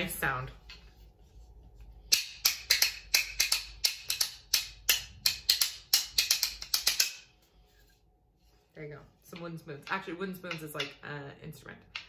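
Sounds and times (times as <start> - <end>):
wooden spoons clacking together: 2.1 - 7.3, 9.3 - 11.1.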